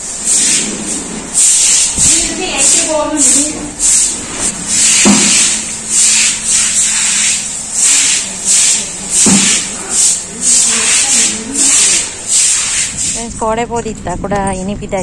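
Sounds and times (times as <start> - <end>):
broom sweeping water: 0.0 - 13.3
sharp knocks: 4.9 - 5.6, 9.2 - 9.7.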